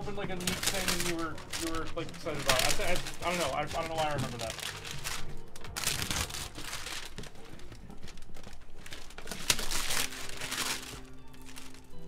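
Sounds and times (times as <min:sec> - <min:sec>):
packing crinkling: 0:00.0 - 0:12.0
cardboard box tearing: 0:08.9 - 0:11.6.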